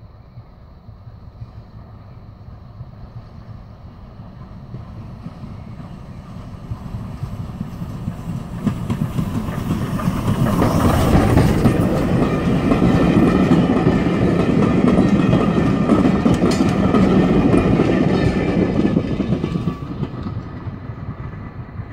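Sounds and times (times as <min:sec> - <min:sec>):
steam locomotive passing: 0:00.0 - 0:21.9
train wheels clattering over rail joints: 0:06.6 - 0:21.4.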